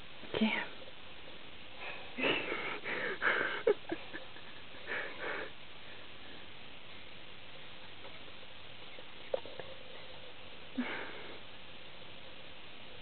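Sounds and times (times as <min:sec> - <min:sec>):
sniffing and hushed breaths: 0:01.6 - 0:07.1, 0:09.4 - 0:12.5.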